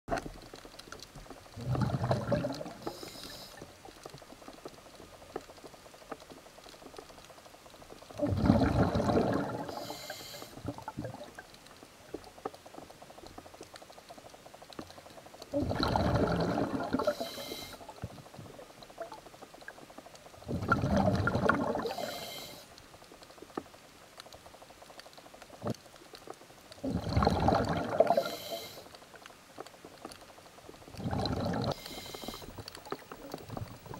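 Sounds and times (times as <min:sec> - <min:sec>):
faint water hiss: 0:00.2 - 0:33.9
exhaled bubbles from regulator: 0:01.6 - 0:03.6, 0:08.2 - 0:11.4, 0:15.5 - 0:18.0, 0:20.4 - 0:22.3, 0:26.8 - 0:28.7, 0:30.9 - 0:33.9.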